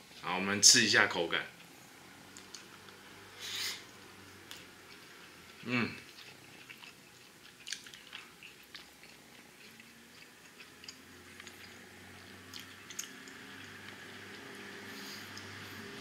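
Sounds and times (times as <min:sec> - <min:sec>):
person chewing food: 0:01.6 - 0:16.0.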